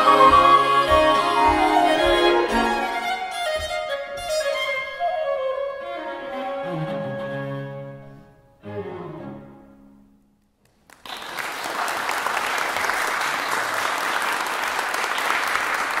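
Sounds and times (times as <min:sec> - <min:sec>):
flute and strings chord: 0:00.0 - 0:08.0
audience applause: 0:10.7 - 0:16.0.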